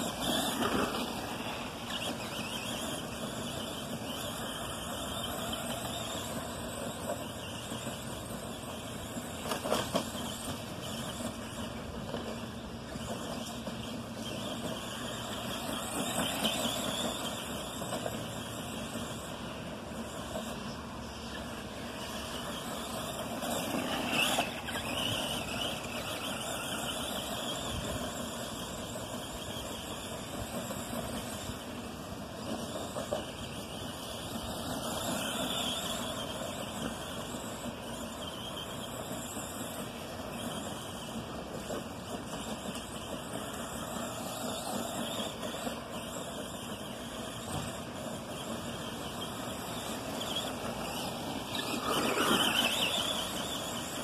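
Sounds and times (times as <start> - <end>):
electric motor whining: 21.2 - 54.0.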